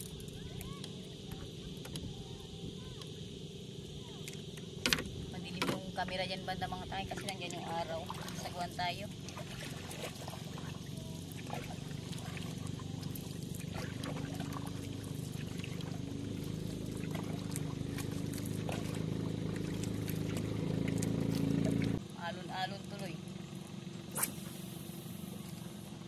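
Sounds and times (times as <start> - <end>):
steady low hum: 0.0 - 26.0
water splashing and dripping: 7.1 - 22.0
wooden paddle strokes in water: 7.1 - 22.0.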